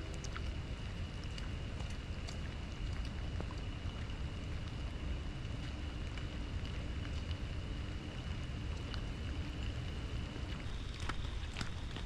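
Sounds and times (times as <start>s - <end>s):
light rain pattering: 0.0s - 12.0s
footsteps on wet trail: 10.6s - 12.0s.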